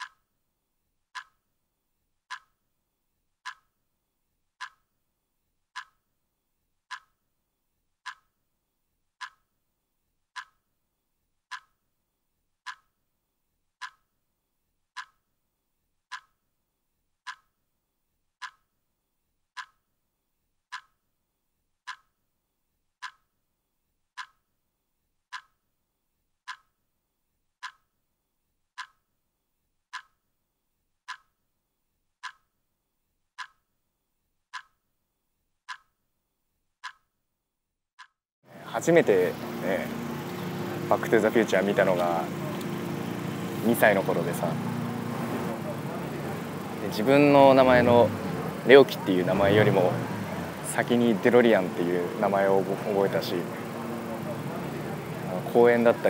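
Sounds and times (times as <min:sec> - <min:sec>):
clock ticking: 0:02.3 - 0:02.5, 0:06.9 - 0:07.1, 0:11.5 - 0:11.7, 0:12.7 - 0:12.9, 0:13.8 - 0:14.0, 0:16.1 - 0:16.3, 0:17.3 - 0:17.5, 0:18.4 - 0:18.6, 0:19.6 - 0:19.8, 0:21.9 - 0:22.1, 0:24.2 - 0:24.4, 0:27.6 - 0:27.8, 0:28.8 - 0:29.0, 0:30.0 - 0:30.2, 0:31.1 - 0:31.3, 0:32.2 - 0:32.4, 0:33.4 - 0:33.6, 0:34.6 - 0:34.8, 0:35.7 - 0:35.9, 0:36.8 - 0:37.1, 0:38.8 - 0:56.0.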